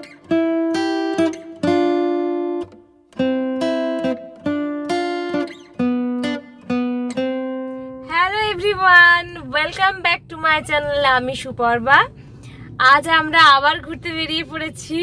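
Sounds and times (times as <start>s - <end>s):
acoustic guitar strumming chords: 0.0s - 8.8s.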